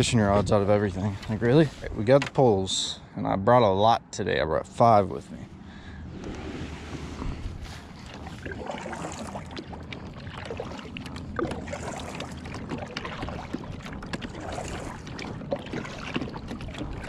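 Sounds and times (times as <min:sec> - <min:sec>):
wind on microphone: 0:00.0 - 0:02.0, 0:06.0 - 0:09.5
water lapping against kayak hull: 0:05.2 - 0:17.0.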